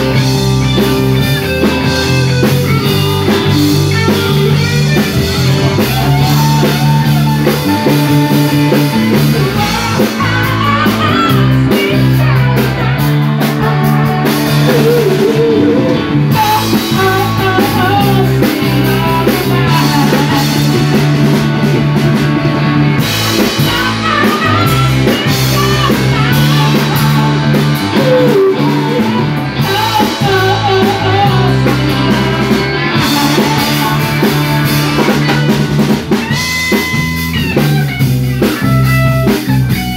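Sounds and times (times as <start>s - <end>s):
live rock band playing: 0.0s - 39.9s
man singing: 3.9s - 21.1s, 23.4s - 35.5s.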